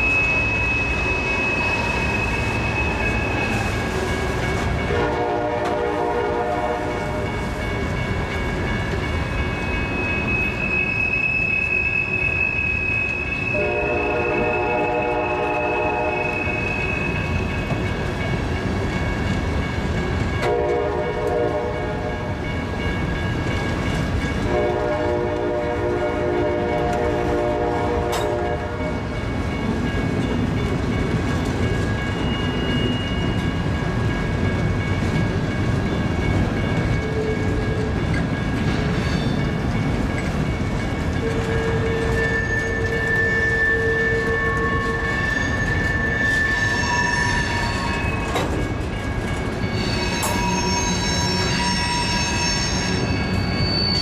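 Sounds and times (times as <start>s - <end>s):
wheel flange squeals: 0.0s - 4.0s, 9.7s - 13.7s, 41.4s - 48.6s, 49.6s - 54.0s
train wheels rumbling on rails: 0.0s - 54.0s
locomotive horn blowing: 4.9s - 7.1s, 13.4s - 16.9s, 20.4s - 22.3s, 24.5s - 29.0s.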